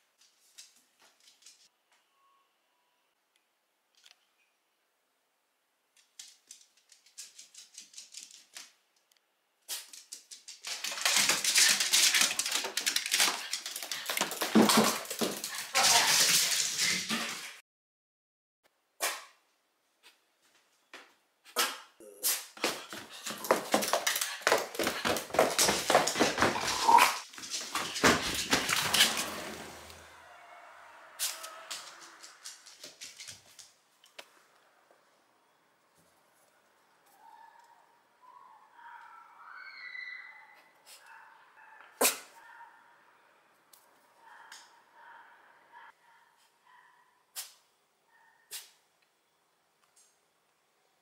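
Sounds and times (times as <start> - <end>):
dog claws clicking on wooden floor: 6.0 - 8.8, 9.8 - 16.9, 22.6 - 29.3, 31.2 - 34.2.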